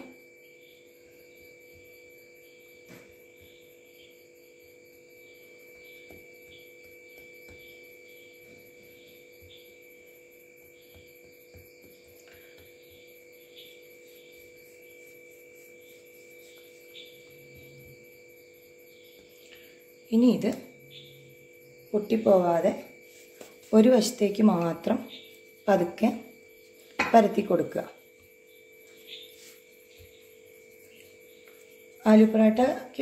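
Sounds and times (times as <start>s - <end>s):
faint electrical hum: 0.0s - 33.0s.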